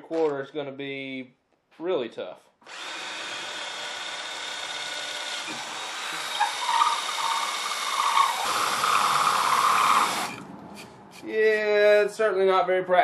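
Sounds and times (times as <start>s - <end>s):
drill bit grinding through wood: 2.6s - 10.4s
drill motor whine: 2.7s - 10.4s.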